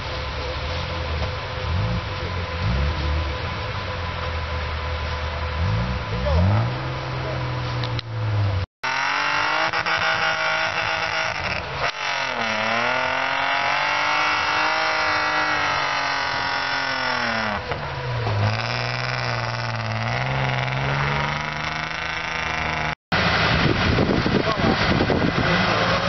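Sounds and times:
off-road engine revving: 0.0s - 26.0s.

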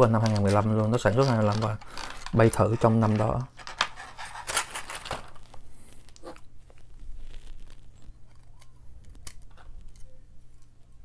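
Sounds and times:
plastic packaging crinkling: 0.0s - 10.1s
plastic parts clicking: 0.1s - 5.5s.

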